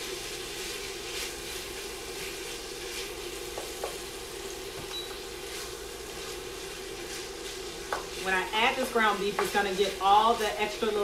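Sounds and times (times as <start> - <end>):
meat sizzling in fat: 0.0 - 11.0
wooden spoon scraping a pot: 5.5 - 10.6.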